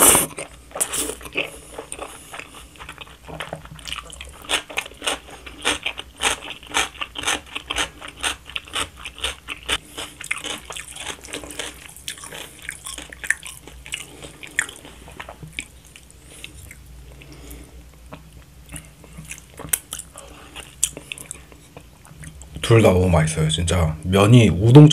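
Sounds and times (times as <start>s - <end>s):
chewing noodles: 0.0s - 17.6s.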